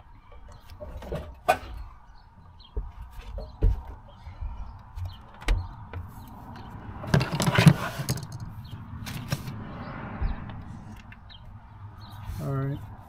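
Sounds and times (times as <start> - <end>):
plastic parts knocking and scraping: 7.1 - 9.6.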